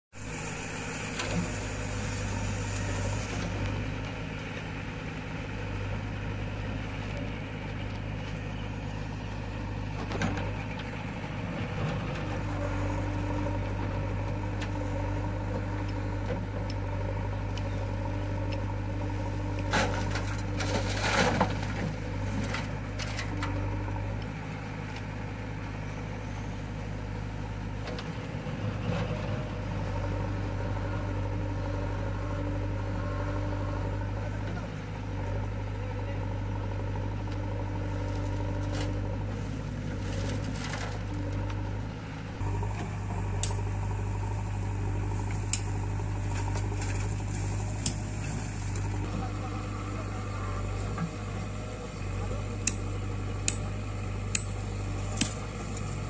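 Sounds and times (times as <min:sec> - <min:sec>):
diesel engine under load: 0:00.1 - 0:56.0.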